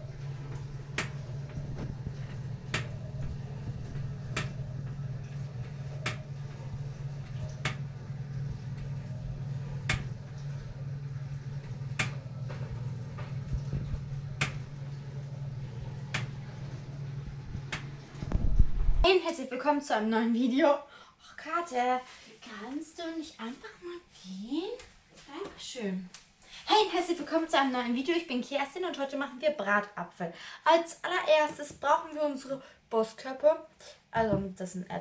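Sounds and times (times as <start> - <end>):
oven fan humming: 0.0 - 19.1.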